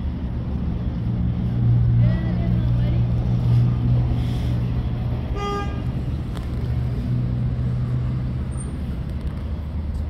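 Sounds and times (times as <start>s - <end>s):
vehicle horn toot: 5.3s - 5.9s.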